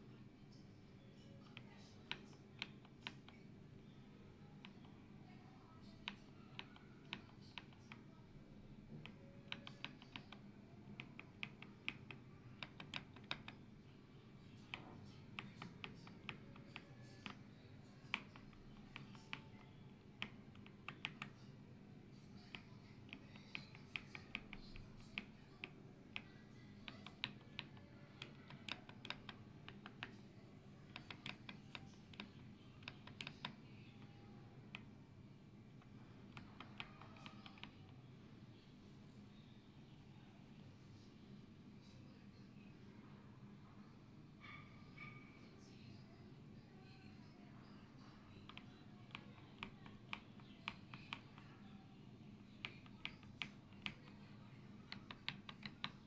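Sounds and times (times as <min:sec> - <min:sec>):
faint steady hum: 0:00.0 - 0:56.0
mechanical keyboard typing: 0:08.9 - 0:13.7, 0:14.6 - 0:21.5, 0:22.4 - 0:34.9, 0:35.8 - 0:38.0, 0:48.1 - 0:51.7, 0:52.4 - 0:56.0.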